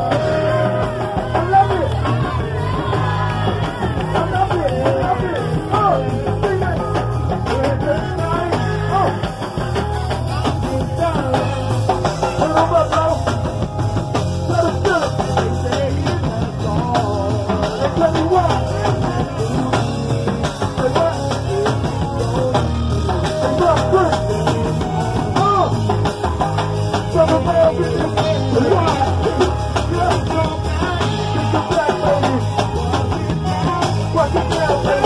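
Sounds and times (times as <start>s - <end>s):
drum and bass groove: 0.0s - 35.0s
voices singing: 0.0s - 35.0s.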